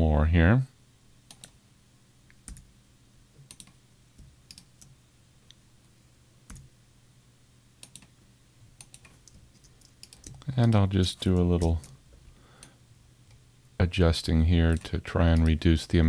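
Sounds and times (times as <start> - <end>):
low steady hum: 0.0 - 16.0
keyboard and mouse clicks: 1.3 - 1.6, 2.3 - 2.7, 3.4 - 5.0, 6.5 - 6.7, 7.8 - 8.2, 8.8 - 12.0.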